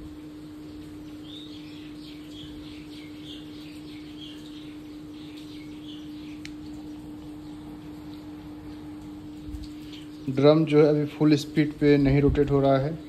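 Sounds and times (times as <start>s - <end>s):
washing machine spinning: 0.0s - 13.0s
birds chirping: 0.6s - 13.0s.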